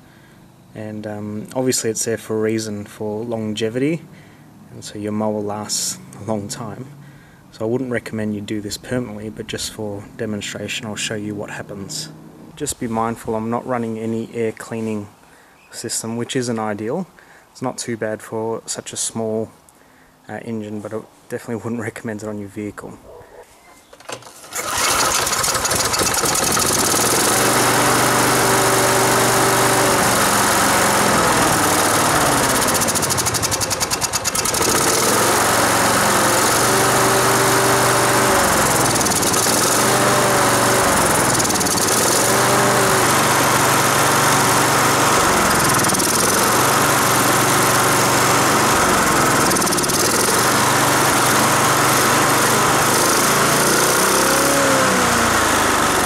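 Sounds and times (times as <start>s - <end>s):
lawn mower engine running: 24.0s - 56.0s.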